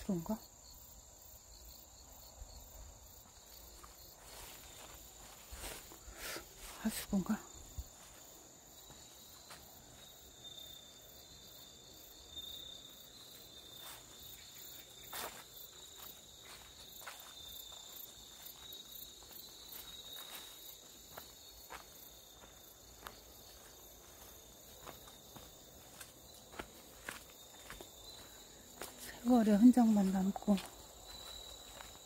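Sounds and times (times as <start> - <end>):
insects trilling: 0.0 - 32.0
soft footsteps in grass: 2.9 - 10.8, 12.9 - 32.0.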